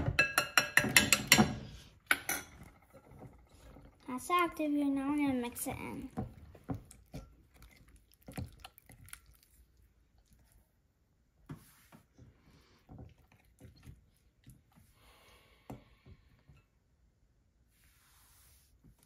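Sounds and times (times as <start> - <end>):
spatula tapping glass bowl: 0.0 - 2.4
slime squelching: 5.0 - 11.0.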